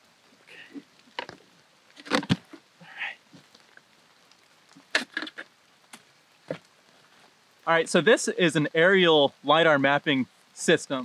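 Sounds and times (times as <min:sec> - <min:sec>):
soft rustles: 0:00.4 - 0:07.6.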